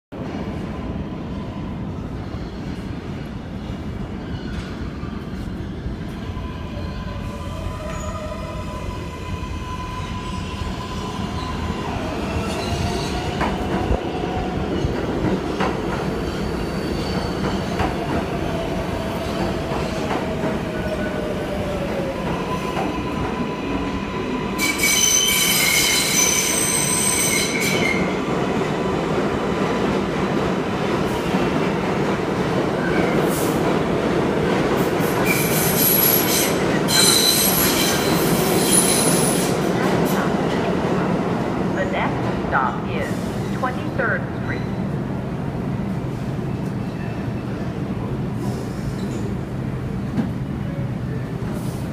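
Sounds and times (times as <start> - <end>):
train wheels rumbling on rail: 7.6 - 51.9
high-pitched brake squeal: 24.6 - 28.1, 35.2 - 39.4.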